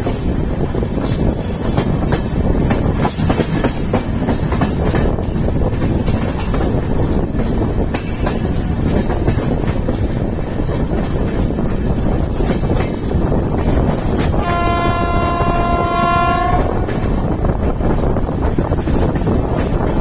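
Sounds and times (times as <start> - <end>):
wheels clicking and clacking: 0.0 - 14.4
train wheels rumbling on rails: 0.0 - 20.0.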